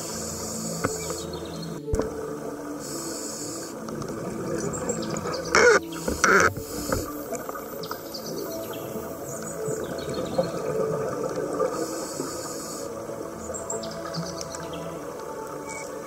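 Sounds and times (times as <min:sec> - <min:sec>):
steady underwater hiss: 0:00.0 - 0:16.0.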